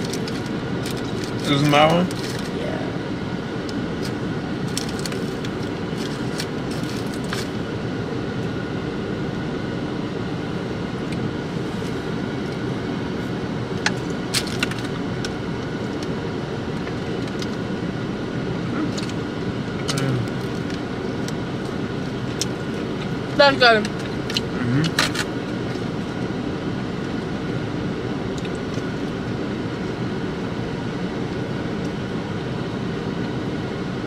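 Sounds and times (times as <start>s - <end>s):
plastic and paper rustling: 0.0s - 2.5s, 4.0s - 7.5s
car cabin hum: 0.0s - 34.0s.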